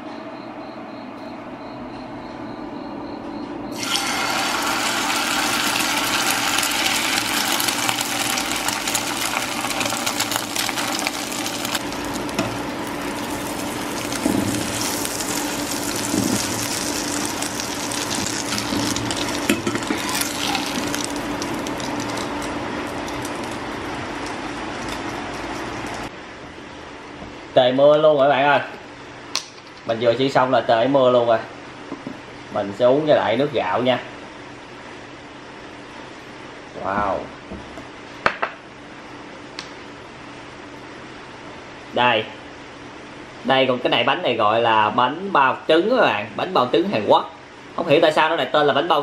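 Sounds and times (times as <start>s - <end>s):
batter sizzling in oil: 3.7s - 26.1s.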